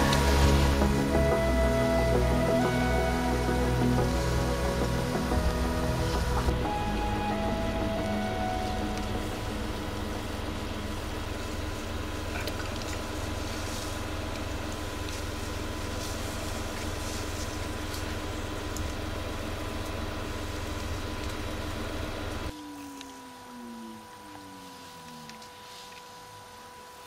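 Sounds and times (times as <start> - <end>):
car engine idling: 0.0 - 22.5.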